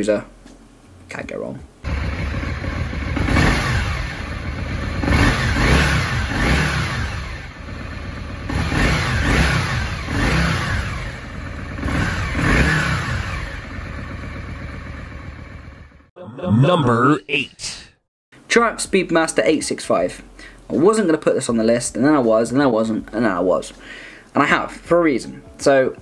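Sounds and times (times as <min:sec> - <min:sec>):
motorcycle engine revving: 0:01.8 - 0:16.1.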